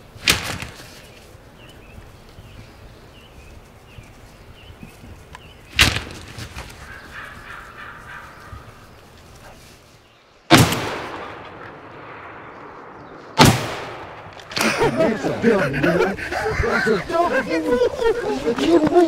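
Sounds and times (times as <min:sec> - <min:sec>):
shotgun blasts with echo: 0:10.5 - 0:14.8.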